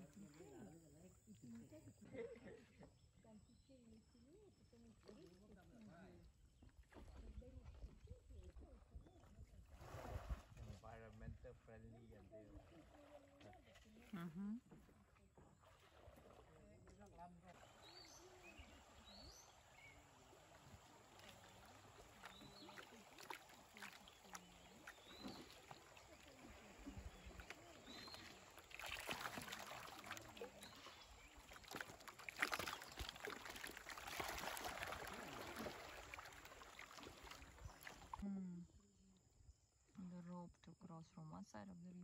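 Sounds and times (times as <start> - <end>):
river water rushing and splashing: 27.5 - 38.1.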